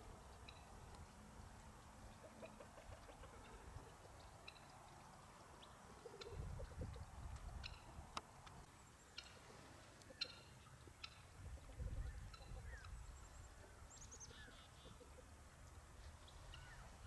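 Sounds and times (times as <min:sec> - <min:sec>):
chickens clucking: 0:01.7 - 0:08.0, 0:09.2 - 0:13.0, 0:14.5 - 0:15.4
wind rumble on microphone: 0:06.2 - 0:08.2, 0:11.3 - 0:13.5.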